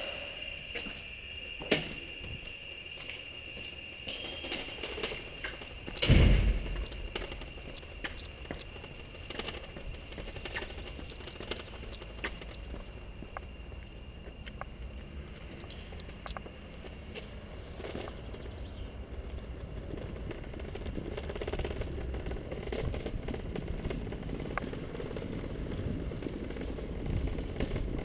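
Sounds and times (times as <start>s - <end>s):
bicycle clicking and rattling: 3.7s - 13.1s, 14.6s - 28.0s
heavy thump: 6.0s - 6.8s.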